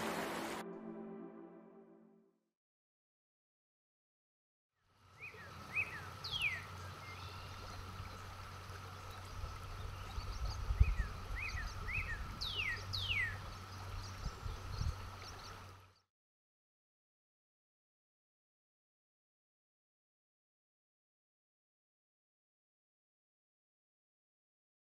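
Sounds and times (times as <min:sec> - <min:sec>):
constant high hum: 0:05.0 - 0:16.0
birds chirping: 0:05.2 - 0:16.0.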